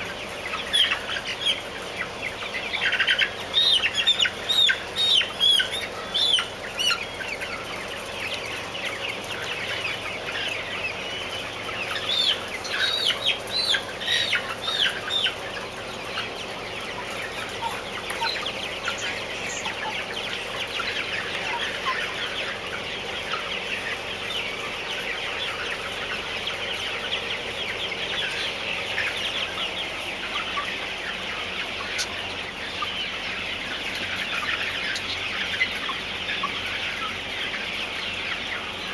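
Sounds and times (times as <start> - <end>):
chickens clucking and chirping: 0.0 - 38.9.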